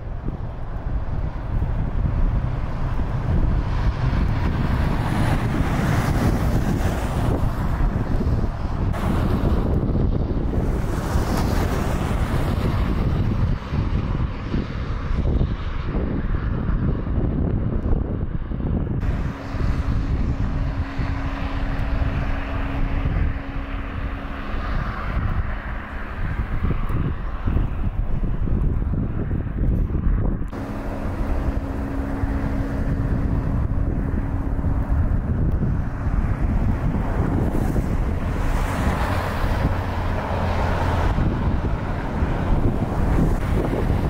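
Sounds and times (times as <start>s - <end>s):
traffic rumble: 0.0s - 44.0s
wind buffeting microphone: 0.0s - 44.0s.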